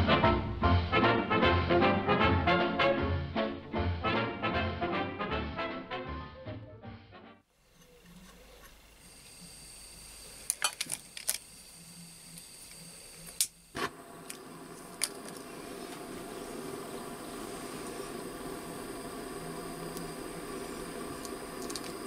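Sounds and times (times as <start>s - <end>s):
gas hissing from valve: 8.8s - 22.0s
lighter clicks: 13.2s - 16.7s, 17.8s - 22.0s
torch flame rushing: 13.7s - 22.0s.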